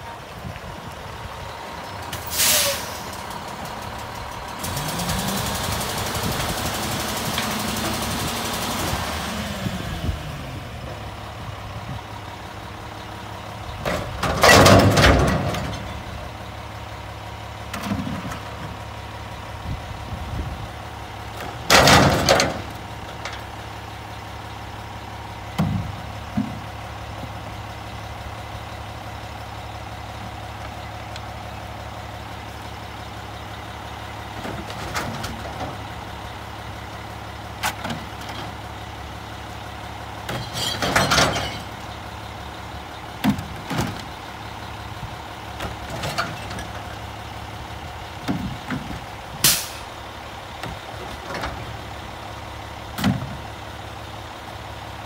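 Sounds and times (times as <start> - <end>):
diesel engine idling: 0.0 - 55.0
recycling clattering into truck: 13.7 - 16.1, 21.3 - 23.6, 25.4 - 27.4, 34.2 - 36.1, 40.1 - 42.1, 43.1 - 44.3, 45.5 - 47.1, 48.0 - 49.9, 52.8 - 53.5.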